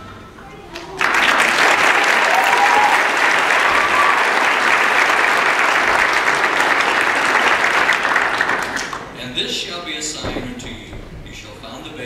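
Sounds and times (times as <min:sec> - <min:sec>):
audience applauding: 0:00.7 - 0:09.2.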